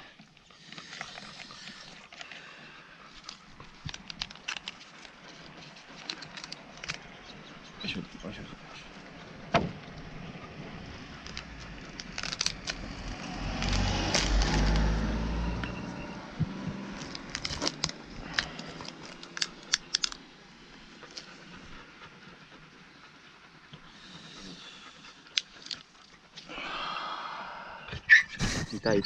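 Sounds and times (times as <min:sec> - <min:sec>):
low rumble: 0:07.2 - 0:19.2.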